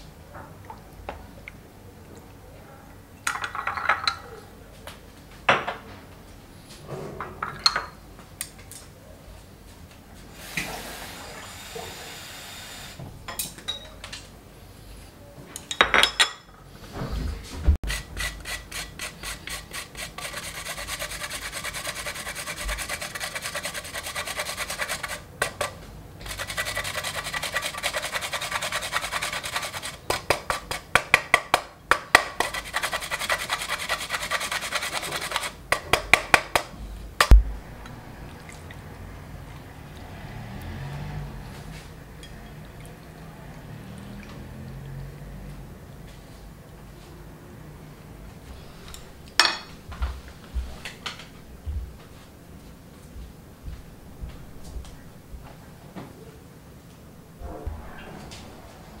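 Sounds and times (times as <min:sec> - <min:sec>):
ginger rasped on metal grater: 0:17.8 - 0:30.8, 0:32.4 - 0:35.6.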